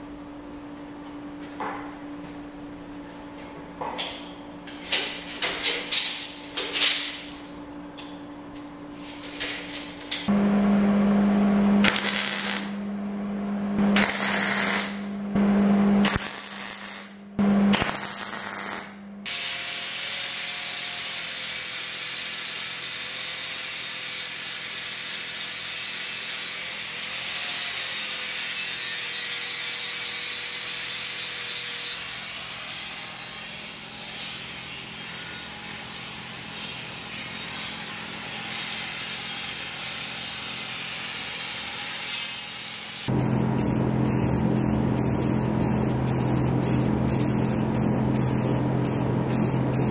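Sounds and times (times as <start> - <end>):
angle grinder on steel: 11.8 - 12.8, 14.0 - 15.1, 16.0 - 43.2
electric welding bursts: 11.8 - 12.8, 13.9 - 15.1, 16.0 - 22.6, 43.0 - 49.9.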